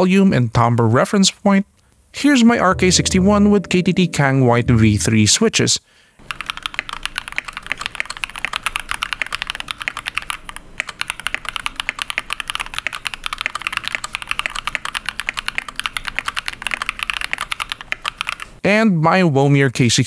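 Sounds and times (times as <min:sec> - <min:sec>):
fast mechanical keyboard typing: 0:06.2 - 0:18.6.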